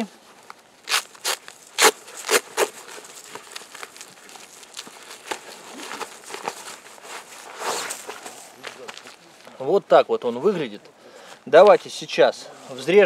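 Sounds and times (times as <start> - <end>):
nylon fabric rustling and scraping: 0.2 - 8.9
sharp fabric rasps: 0.8 - 8.2.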